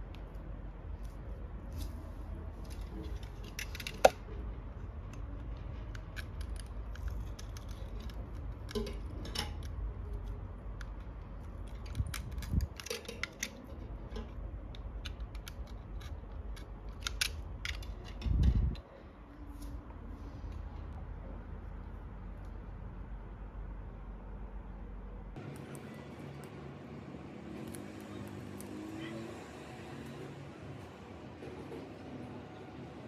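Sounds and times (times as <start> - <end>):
small metal clicks and scrapes: 1.0 - 18.9.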